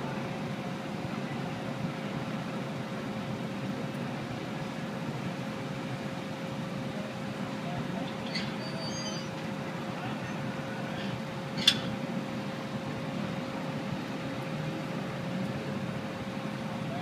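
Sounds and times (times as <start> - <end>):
road traffic: 0.0 - 17.0
distant voices: 6.4 - 17.0.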